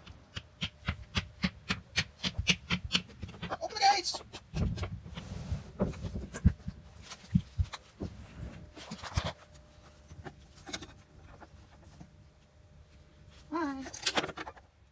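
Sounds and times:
stuffed toys knocking and rustling: 0.0s - 9.4s.

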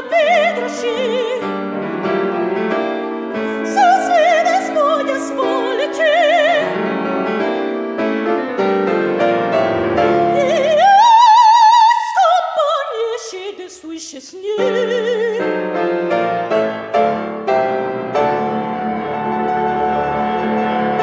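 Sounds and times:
operatic soprano singing: 0.0s - 1.6s, 3.4s - 6.9s, 10.2s - 15.8s
grand piano: 0.0s - 21.0s.

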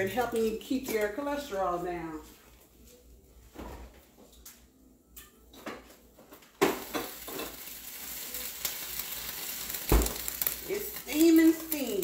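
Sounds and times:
dishes and utensils clinking: 5.2s - 7.6s
steady crackling hiss: 6.7s - 12.0s.

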